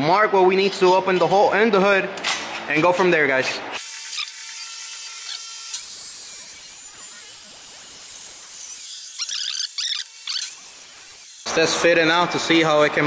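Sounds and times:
sharp squeaks: 8.8 - 11.5.

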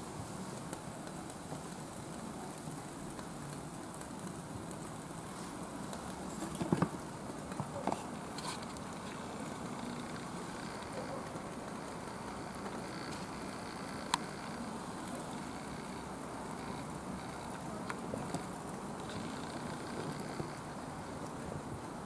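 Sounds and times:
soft rushing of stoves burning: 0.0 - 22.0.

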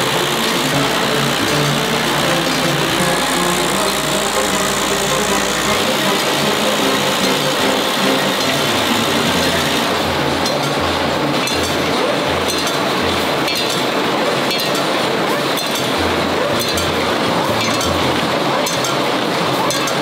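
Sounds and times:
low machine beat: 0.0 - 11.4
machine metallic clatter: 0.0 - 20.0.

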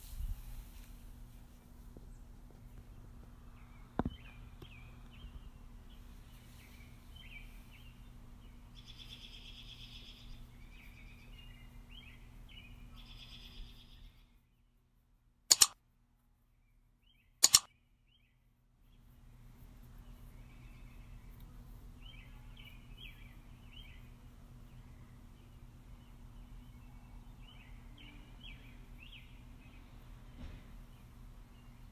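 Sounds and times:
low steady hum: 0.0 - 31.9
faint birdsong: 0.8 - 31.9
doubled click sound effects: 15.5 - 15.8, 17.4 - 17.7.

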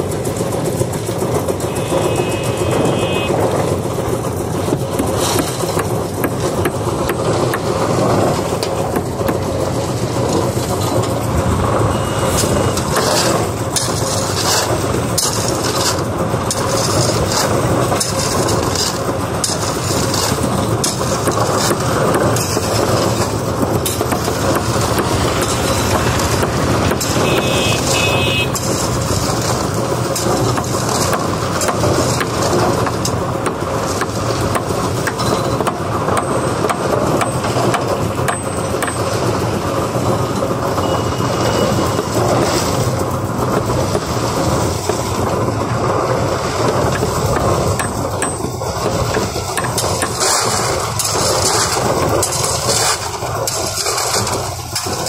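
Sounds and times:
engine drone: 0.0 - 55.0
hammer striking wooden planks: 30.1 - 39.1, 46.6 - 55.0.

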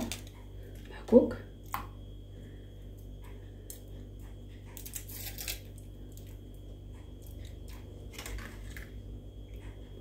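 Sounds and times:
steady low hum: 0.0 - 10.0
foil wrapper crinkling: 4.8 - 6.3.

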